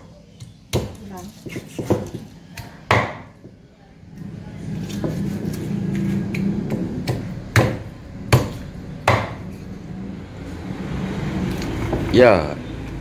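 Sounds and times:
knife chopping on wooden board: 0.7s - 3.3s, 6.7s - 9.4s.

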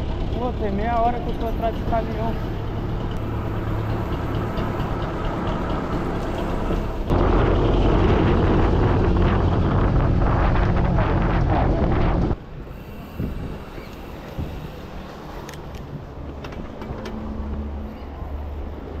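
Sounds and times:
road traffic noise: 0.0s - 19.0s
wind buffeting microphone: 4.4s - 17.0s.

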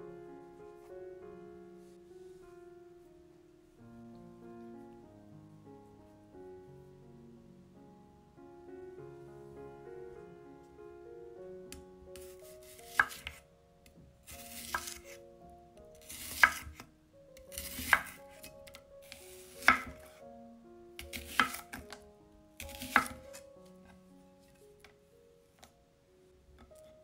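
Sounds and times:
soft piano music: 0.0s - 27.0s
knife slicing onion on wooden board: 12.6s - 13.4s, 14.3s - 15.1s, 16.0s - 16.8s, 17.5s - 18.2s, 19.1s - 20.0s, 21.0s - 21.9s, 22.6s - 23.4s.

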